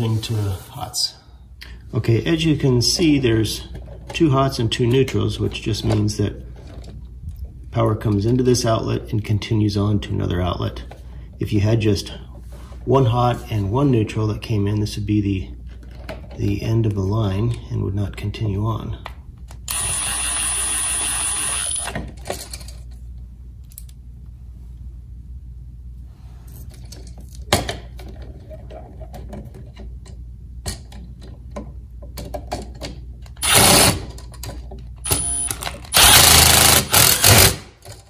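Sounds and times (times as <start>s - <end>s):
cordless driver motor whine: 19.7s - 22.0s, 35.1s - 37.5s
small clicks and handling knocks: 26.7s - 33.4s.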